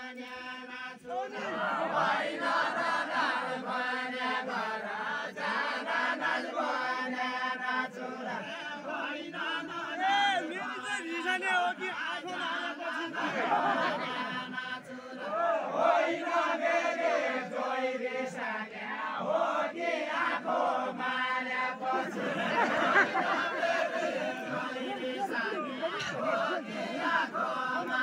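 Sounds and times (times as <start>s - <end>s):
group singing folk song: 0.0s - 28.0s.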